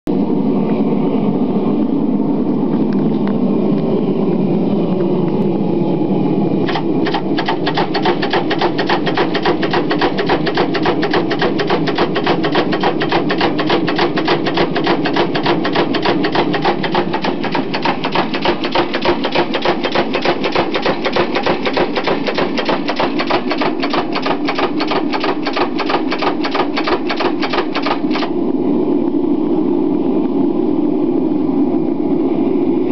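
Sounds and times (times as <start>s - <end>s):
steady low rumble: 0.1s - 32.9s
power hammer striking hot metal: 6.7s - 28.3s.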